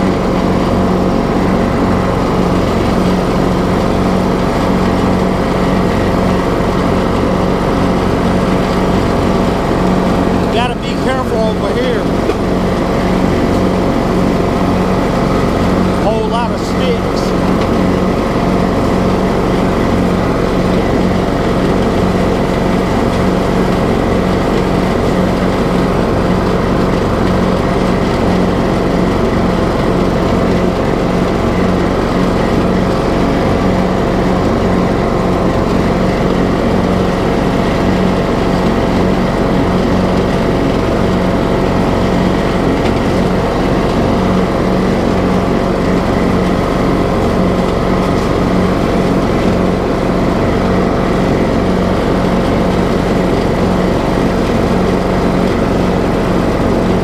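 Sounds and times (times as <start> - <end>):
riding lawn mower engine running: 0.0 - 57.0.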